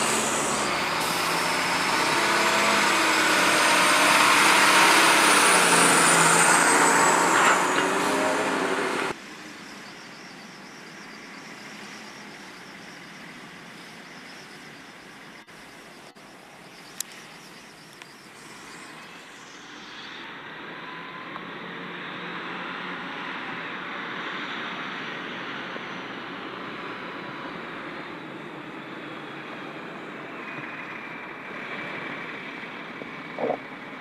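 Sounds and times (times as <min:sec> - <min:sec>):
trucks driving past: 0:00.0 - 0:34.0.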